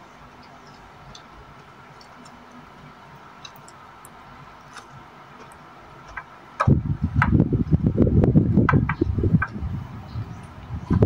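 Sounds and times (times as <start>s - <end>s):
loud rough rumbling noise: 6.6s - 11.0s.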